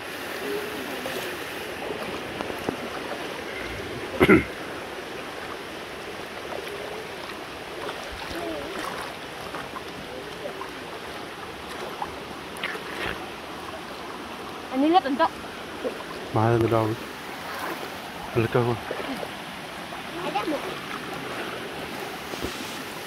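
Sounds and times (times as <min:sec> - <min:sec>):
stream running over its bed: 0:00.0 - 0:23.0
water stirred by wading: 0:00.0 - 0:23.0.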